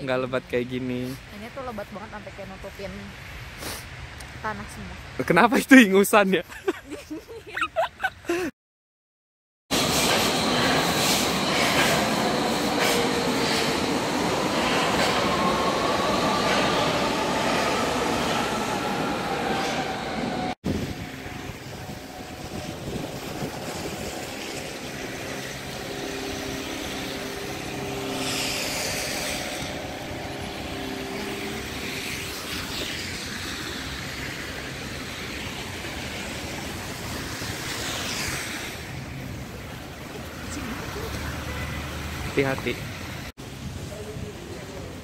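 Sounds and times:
subway train motors whining: 9.7s - 40.2s
street traffic engines: 19.7s - 45.0s
cars swishing past on slush: 23.1s - 43.2s.

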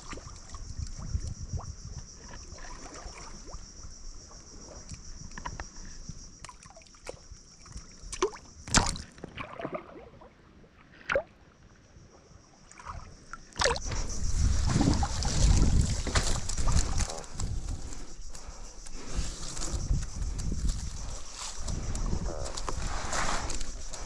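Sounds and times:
water sloshing and splashing: 2.2s - 3.7s, 6.4s - 11.4s, 12.7s - 24.0s
sharp splashes or knocks: 8.2s - 9.9s.

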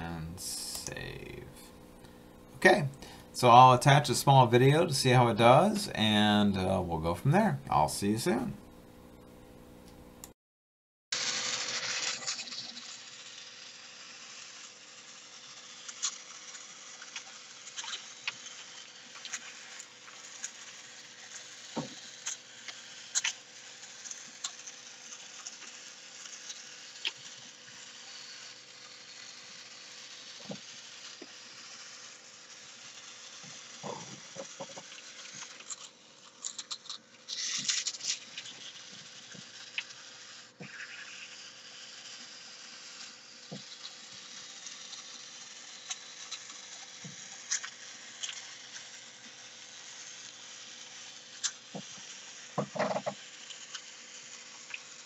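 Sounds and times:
small gear motors running: 11.2s - 55.0s.

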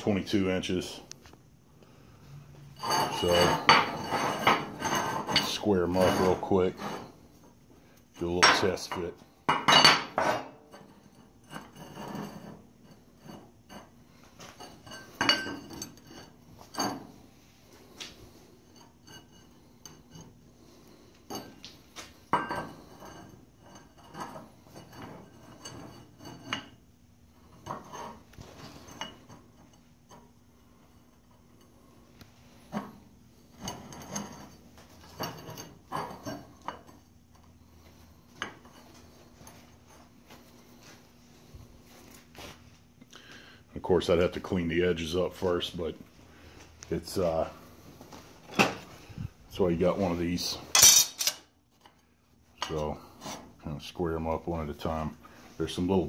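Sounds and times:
metal tubing clanking: 2.7s - 7.0s.

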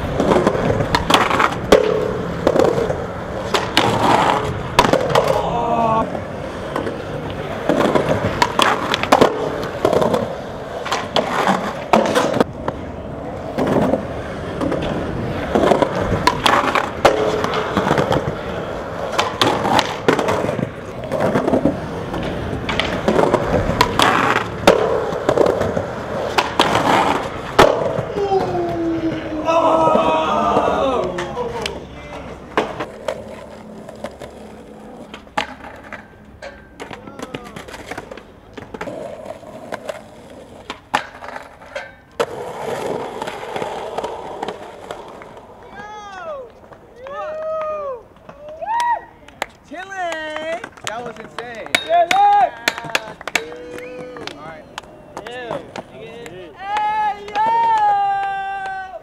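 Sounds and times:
skateboard clacks and scrapes: 0.0s - 29.3s, 29.9s - 45.9s
skateboard rolling on concrete: 0.0s - 59.0s.

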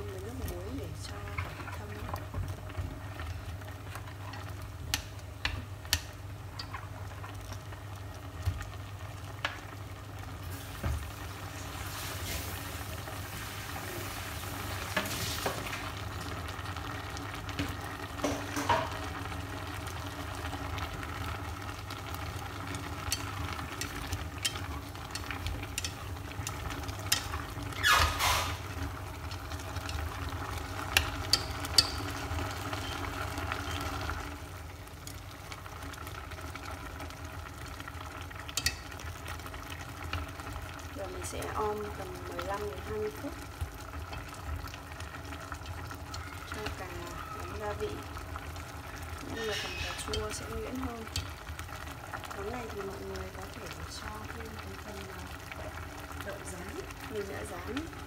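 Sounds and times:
food sizzling in a pot: 0.0s - 58.0s
stirring noises: 0.0s - 58.0s
chopsticks clicking against pot: 23.0s - 27.5s, 30.9s - 32.2s, 38.5s - 38.8s.

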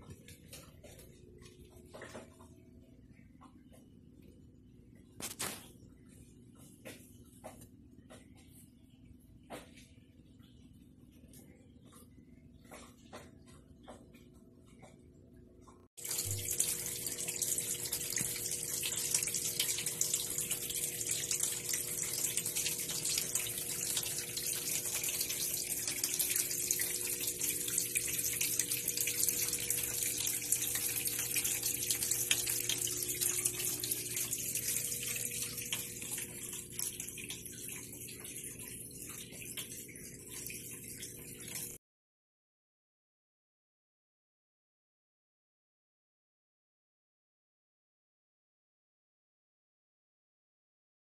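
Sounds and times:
faint steady hum: 0.0s - 41.8s
running splashing water: 16.0s - 41.8s.

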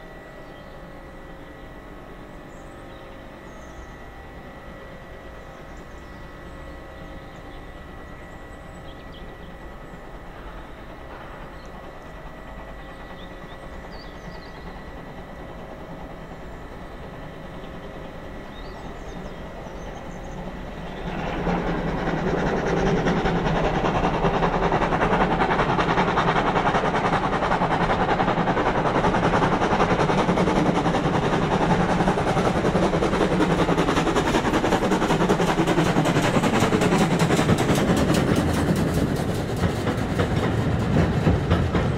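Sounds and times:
steam locomotive exhaust beats: 0.0s - 41.9s
wheels on rails: 10.2s - 41.9s.

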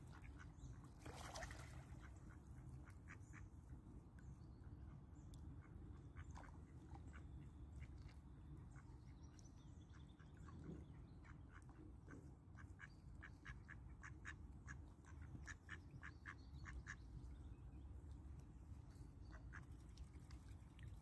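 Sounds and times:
low steady background noise: 0.0s - 21.0s
duck quacking softly: 10.0s - 17.0s.

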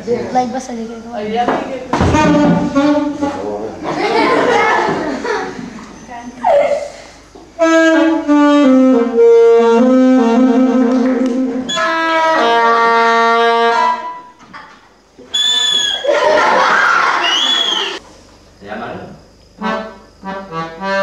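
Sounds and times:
saxophone held notes: 7.6s - 14.3s.

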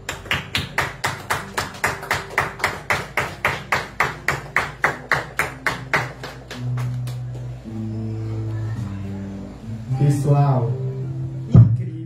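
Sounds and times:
rhythmic clapping in unison: 0.0s - 7.7s.

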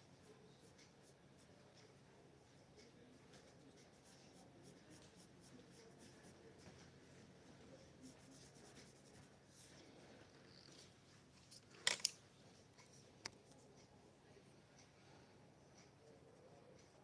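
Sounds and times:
coloured pencil scratching on paper: 3.8s - 6.6s, 7.9s - 9.8s.

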